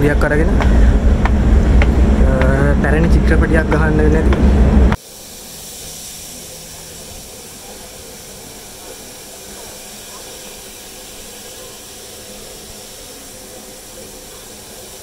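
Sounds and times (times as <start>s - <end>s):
steam hissing: 0.0s - 15.0s.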